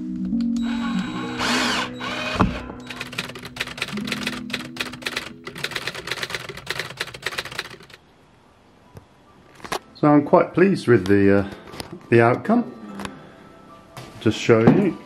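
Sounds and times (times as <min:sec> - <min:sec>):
background music: 0:00.0 - 0:15.0
cordless drill whirring: 0:00.6 - 0:03.1
typewriter key clacks: 0:02.9 - 0:08.0.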